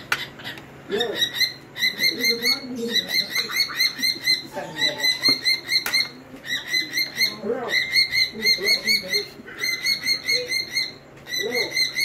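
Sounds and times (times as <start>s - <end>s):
cockatiel chirping: 0.0s - 12.0s.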